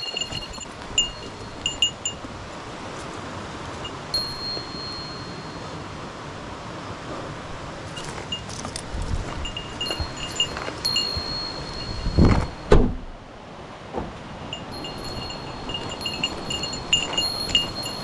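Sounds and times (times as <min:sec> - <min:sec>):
small metal bell tinkling: 0:00.0 - 0:02.2, 0:04.2 - 0:05.9, 0:09.4 - 0:12.7, 0:14.5 - 0:18.0.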